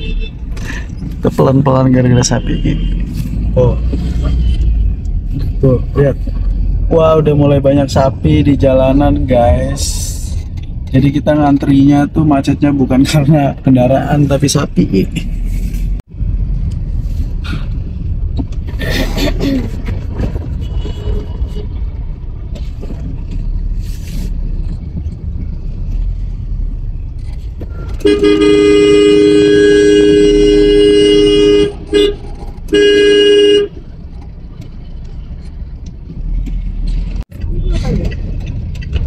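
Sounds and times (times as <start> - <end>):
vehicle horn blasts: 0.0 - 0.4, 27.7 - 33.8
vehicle engine and road rumble: 0.0 - 39.0.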